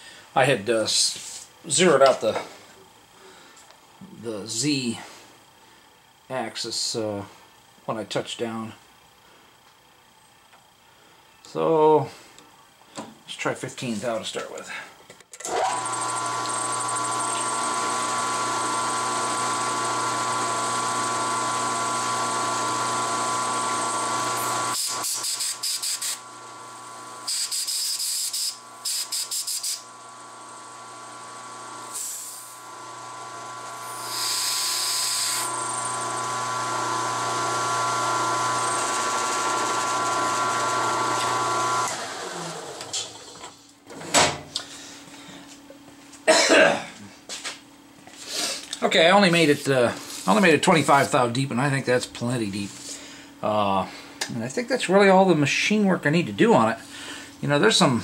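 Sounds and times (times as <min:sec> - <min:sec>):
milling machine whining: 0:15.4 - 0:43.4
short bursts of hiss: 0:24.7 - 0:26.2, 0:27.2 - 0:29.9, 0:31.9 - 0:32.6, 0:33.8 - 0:35.5.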